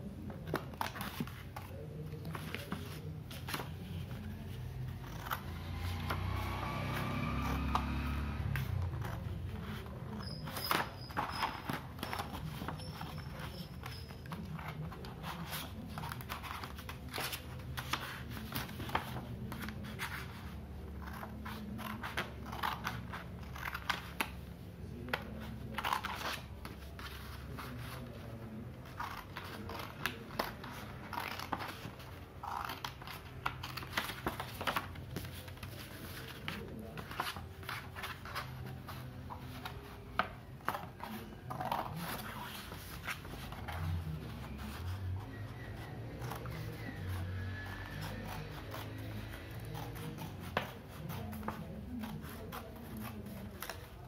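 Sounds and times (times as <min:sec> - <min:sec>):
scissors snipping paper: 0:04.6 - 0:45.2, 0:45.8 - 0:54.0
paper rustling: 0:08.6 - 0:46.8.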